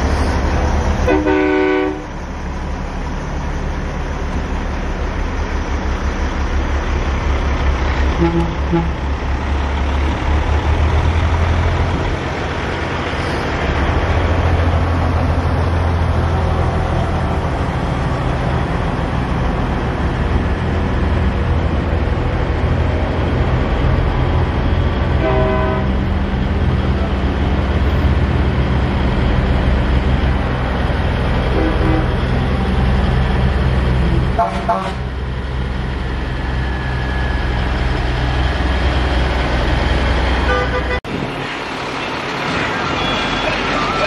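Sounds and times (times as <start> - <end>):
truck diesel engines rumbling: 0.0 - 44.0
truck horn blast: 1.0 - 2.1, 8.2 - 9.0, 25.2 - 26.0, 31.5 - 32.2, 34.0 - 35.1, 40.4 - 41.0.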